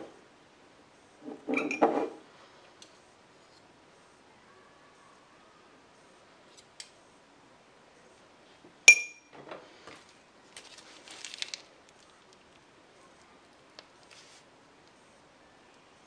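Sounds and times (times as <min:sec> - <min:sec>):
metal spoon clinking glass jar: 0:08.9 - 0:09.3
plastic bag rustling: 0:09.7 - 0:12.1.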